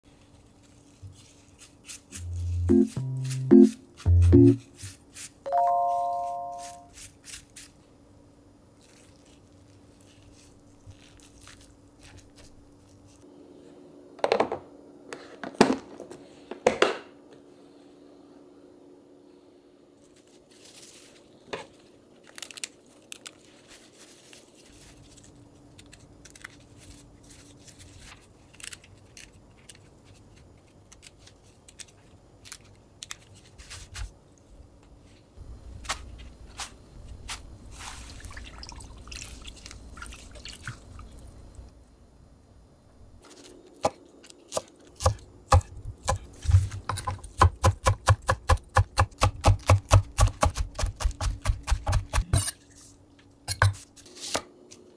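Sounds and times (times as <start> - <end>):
wet leaves rustling in colander: 0.1 - 3.5, 8.7 - 13.3, 20.0 - 30.4, 35.0 - 41.4
knife chopping on wooden board: 43.8 - 52.4.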